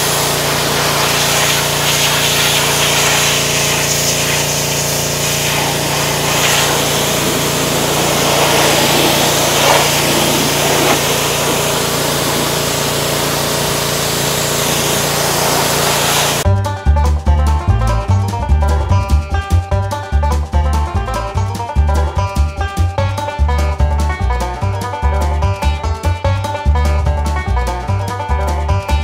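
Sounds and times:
pressure washer spray hissing: 0:00.0 - 0:16.4
washer motor humming: 0:00.0 - 0:16.4.

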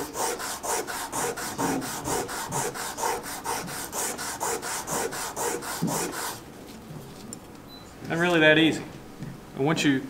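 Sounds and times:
sandpaper rasping by hand: 0:00.0 - 0:06.4.

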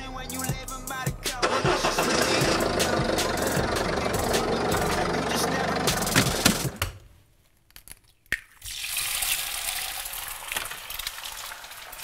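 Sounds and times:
egg sizzling in a pan: 0:08.5 - 0:12.0.

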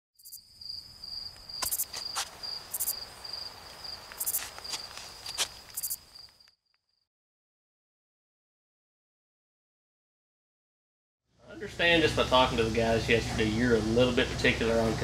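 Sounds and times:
insects chirring: 0:00.2 - 0:07.0
sharp clicks: 0:01.3 - 0:01.9.

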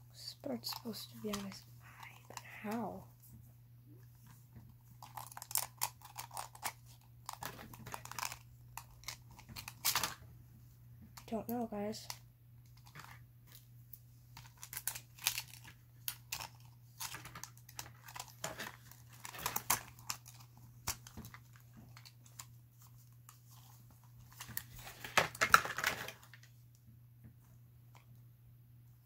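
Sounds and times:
faint low hum: 0:00.0 - 0:29.0
packaging rustling and crinkling: 0:04.2 - 0:10.2, 0:14.4 - 0:26.6.

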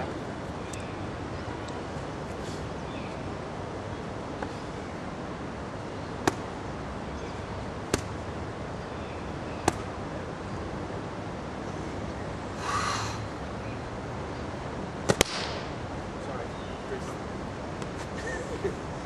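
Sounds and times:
strikes slapping focus mitts: 0:06.2 - 0:06.5, 0:07.9 - 0:08.2, 0:09.6 - 0:09.9, 0:15.0 - 0:15.7.

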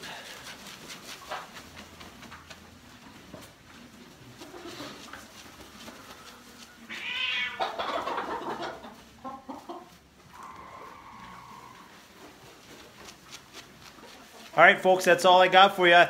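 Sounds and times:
hens clucking: 0:00.0 - 0:15.9
hen long drawn-out call: 0:06.1 - 0:09.6, 0:10.3 - 0:12.1
hen squawking: 0:06.9 - 0:08.6.

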